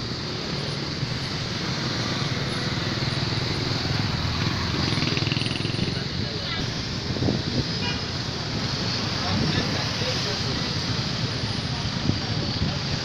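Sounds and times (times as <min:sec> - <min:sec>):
road and wind noise: 0:00.0 - 0:13.0
motorcycle engine running: 0:02.4 - 0:06.4.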